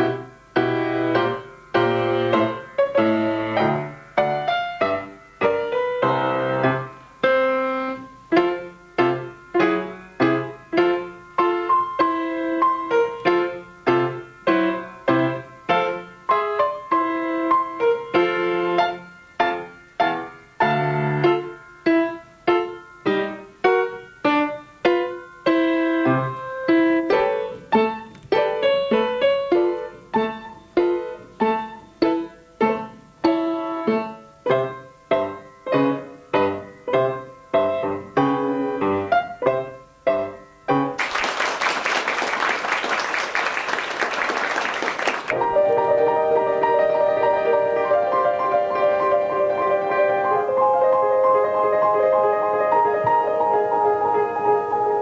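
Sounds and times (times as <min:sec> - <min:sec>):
solo piano: 0:00.0 - 0:55.0
applause: 0:41.0 - 0:45.4.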